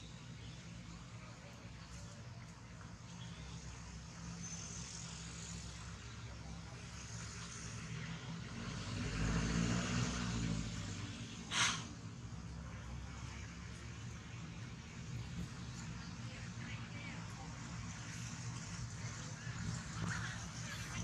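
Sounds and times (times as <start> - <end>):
vehicle engine running: 0.0 - 21.0
short sharp hiss: 11.5 - 12.0.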